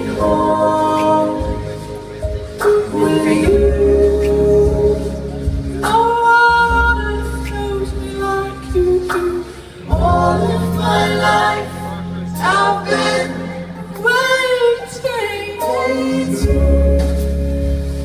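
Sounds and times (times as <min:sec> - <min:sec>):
woman singing slow melody: 0:00.0 - 0:02.0, 0:02.8 - 0:11.7
acoustic band playing low chords: 0:00.0 - 0:18.0.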